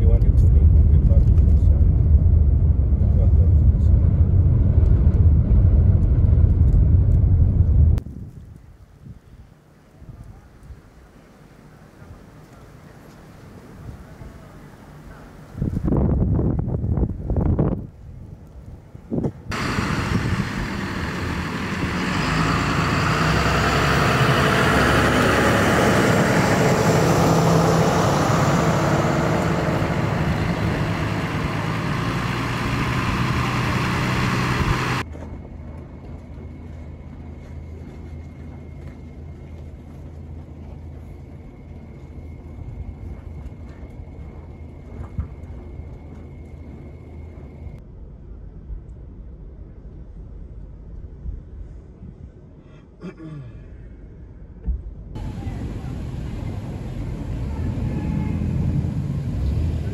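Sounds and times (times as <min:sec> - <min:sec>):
engine running loud rushing: 0:00.0 - 0:08.0, 0:19.5 - 0:35.1, 0:55.2 - 0:59.9
low engine rumble: 0:00.0 - 0:52.6, 0:54.0 - 0:59.9.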